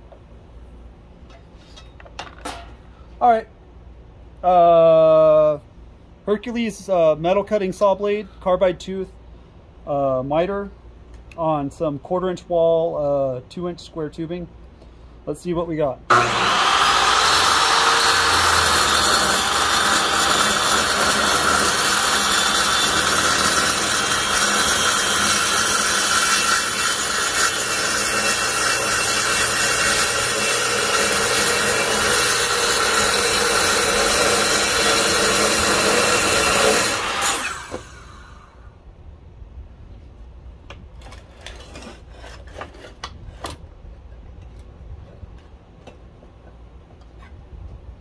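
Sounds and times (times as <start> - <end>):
miter saw cutting metal tubing: 16.1 - 38.6.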